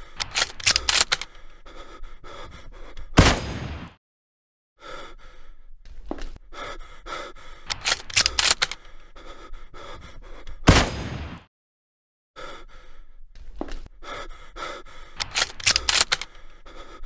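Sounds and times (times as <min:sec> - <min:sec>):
man panting and gasping: 0:00.0 - 0:03.2, 0:04.8 - 0:10.7, 0:12.4 - 0:17.0
loud gunshot: 0:03.2 - 0:04.0, 0:10.7 - 0:11.5
sharp clicks: 0:07.7 - 0:08.8, 0:15.2 - 0:16.3.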